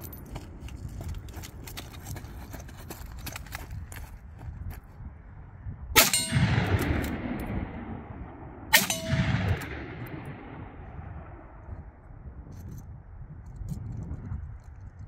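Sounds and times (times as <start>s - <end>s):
rifle shots: 6.0s - 11.6s
rolling echo: 6.0s - 12.0s
bullet clanging on steel target: 8.8s - 9.7s.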